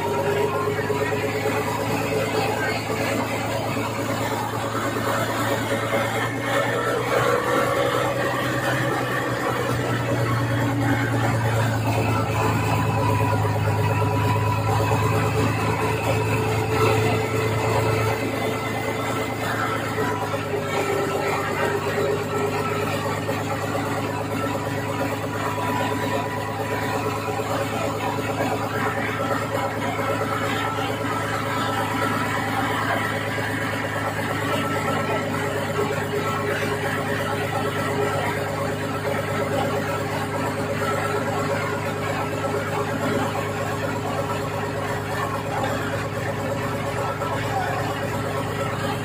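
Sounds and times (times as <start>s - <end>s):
ferry engine humming: 0.0s - 49.0s.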